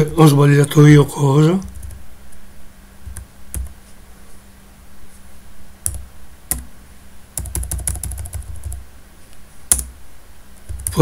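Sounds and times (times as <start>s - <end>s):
computer keyboard typing: 1.6s - 2.0s, 3.0s - 3.8s, 5.8s - 6.7s, 7.4s - 8.8s, 9.7s - 9.9s, 10.6s - 11.0s.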